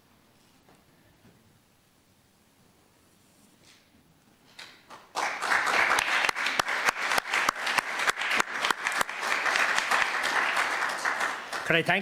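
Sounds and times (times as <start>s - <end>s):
small group applauding: 4.8s - 12.0s.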